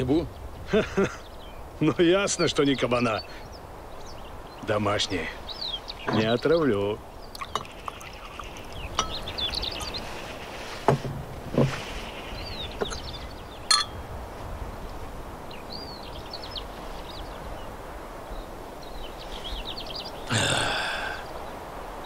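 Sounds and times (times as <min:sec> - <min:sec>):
small birds chirping: 0:00.0 - 0:22.0
short knocks: 0:10.8 - 0:12.0.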